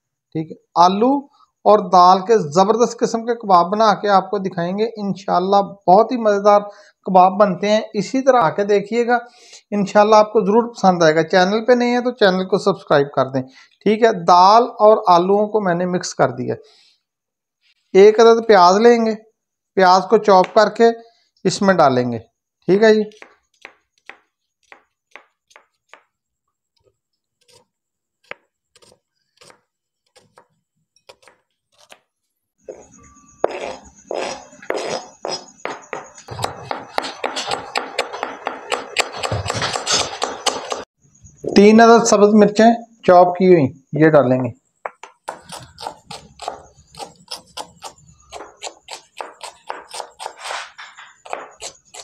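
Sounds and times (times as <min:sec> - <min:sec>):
knife chopping onion on board: 0:23.1 - 0:26.2, 0:28.2 - 0:30.5, 0:31.1 - 0:32.0, 0:33.4 - 0:40.8, 0:44.8 - 0:50.4, 0:51.2 - 0:52.0
onion scraped into bowl: 0:32.7 - 0:35.6, 0:45.3 - 0:52.0.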